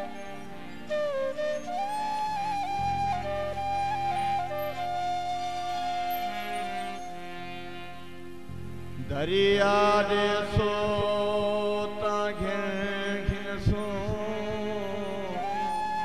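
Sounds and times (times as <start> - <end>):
steady drone: 0.0 - 16.0
man singing wordless note: 9.0 - 16.0.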